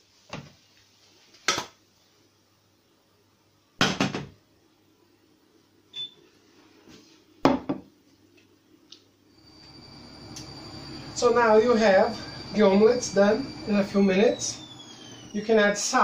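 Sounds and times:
steady low hum: 9.3s - 16.0s.

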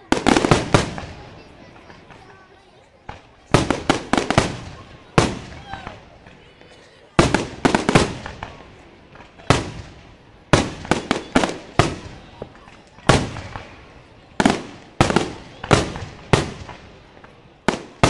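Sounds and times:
firework shells bursting: 7.2s - 18.0s.

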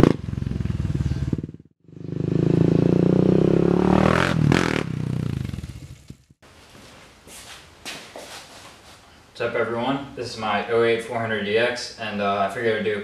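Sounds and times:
quad bike engine passing: 0.0s - 6.3s.

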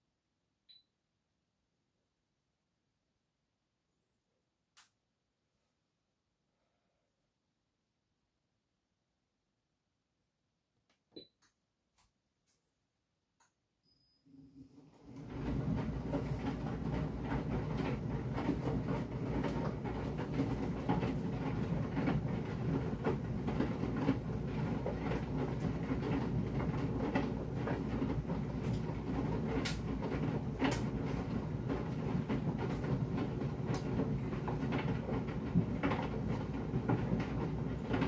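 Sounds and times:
tumble dryer drum hum: 14.5s - 38.0s.

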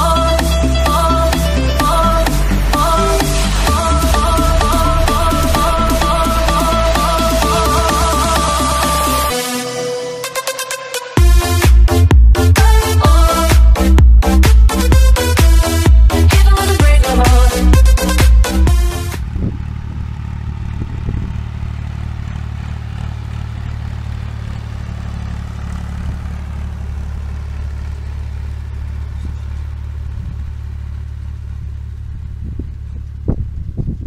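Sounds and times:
low bumps: 0.0s - 9.6s, 11.2s - 34.0s
dance music: 0.0s - 19.3s
tractor engine droning: 0.0s - 34.0s.

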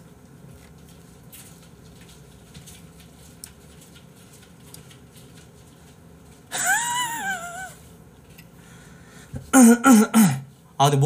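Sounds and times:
man's high squeaky laugh: 6.5s - 7.8s.

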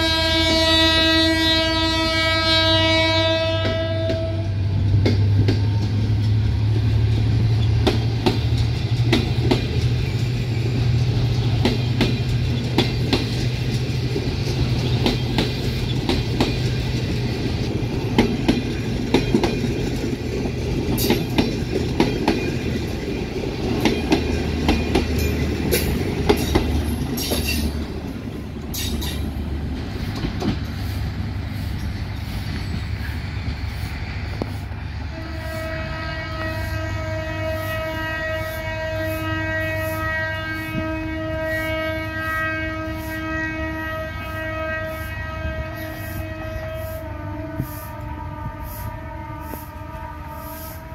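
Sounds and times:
train low rumble: 0.0s - 50.9s
train wheels clacking over joints: 4.9s - 34.8s.

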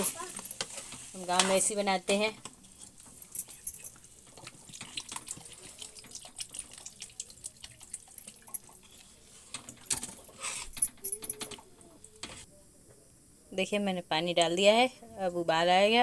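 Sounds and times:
water pouring into a pan: 4.2s - 8.8s.

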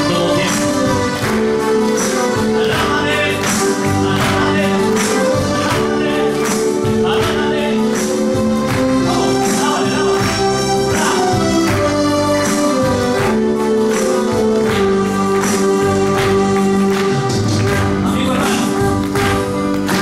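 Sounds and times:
congregation singing: 0.0s - 20.0s
worship song backing track: 0.0s - 20.0s.

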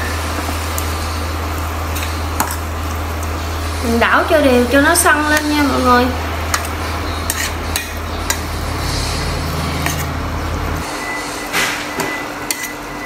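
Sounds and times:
meat sizzling in a frying pan: 0.0s - 10.9s
low hum: 0.0s - 11.2s
spatula scraping and knocking pan: 2.0s - 2.7s, 6.5s - 10.2s, 11.6s - 12.8s.

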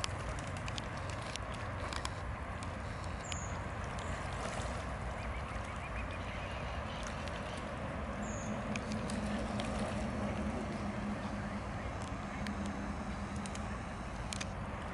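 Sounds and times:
small clicks: 0.0s - 4.2s, 8.6s - 10.5s, 11.9s - 14.9s
birds dabbling and pecking: 0.0s - 14.9s
low hum: 0.0s - 14.9s
soft water noise: 0.0s - 14.9s.

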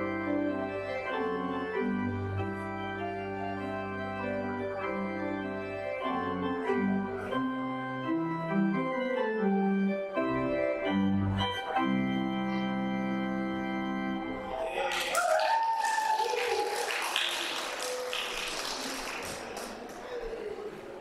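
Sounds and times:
church organ playing chords: 0.0s - 14.6s.

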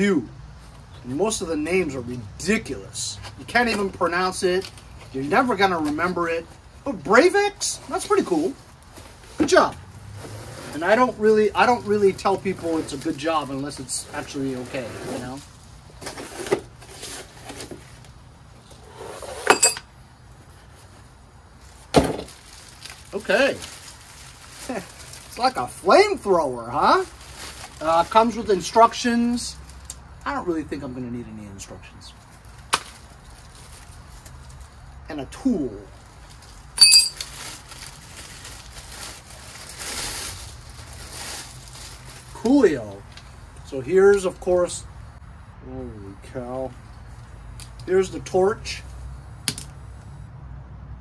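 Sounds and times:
plastic and cardboard rustling: 3.1s - 19.5s, 20.4s - 29.8s, 32.1s - 34.8s, 35.5s - 43.4s
plastic wrapping crinkling: 10.8s - 18.2s, 20.8s - 29.9s, 32.2s - 34.9s, 35.9s - 43.4s
metallic clink: 19.5s - 19.9s, 36.8s - 37.2s.

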